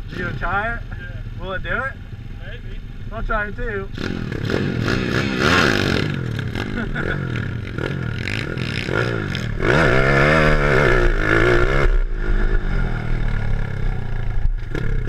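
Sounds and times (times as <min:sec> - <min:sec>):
small motorbike engine accelerating: 0:03.9 - 0:15.0.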